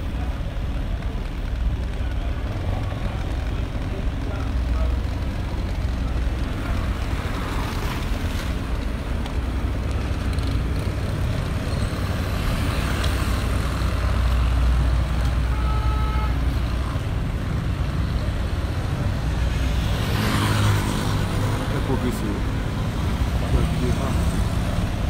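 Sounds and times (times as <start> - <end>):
vehicle driving rumble: 0.0 - 25.0
two-tone horn toot: 15.4 - 16.4.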